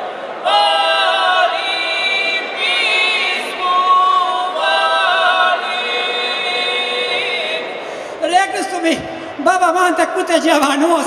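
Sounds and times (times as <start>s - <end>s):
women singing a cappella: 0.0s - 8.2s.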